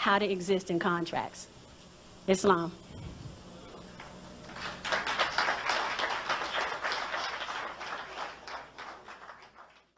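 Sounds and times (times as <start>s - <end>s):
audience applauding: 4.4s - 9.9s.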